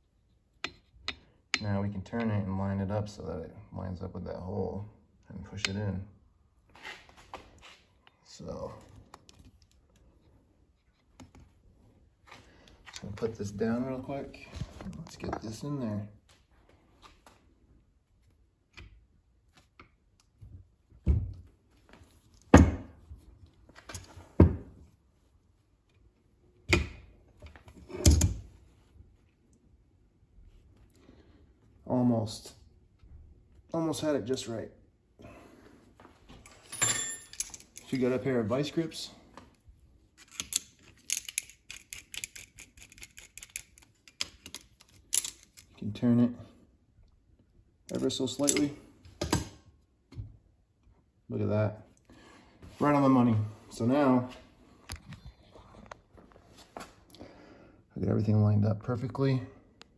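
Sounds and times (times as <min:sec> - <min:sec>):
pliers clicking on metal: 0:40.2 - 0:45.7.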